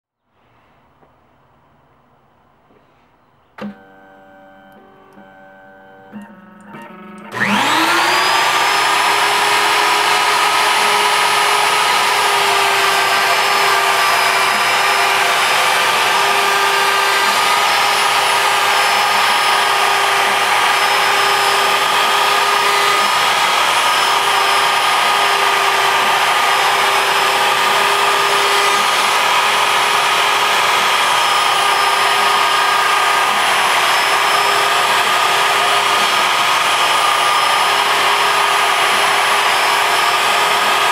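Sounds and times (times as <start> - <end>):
router spindle high whine: 3.6 - 40.9.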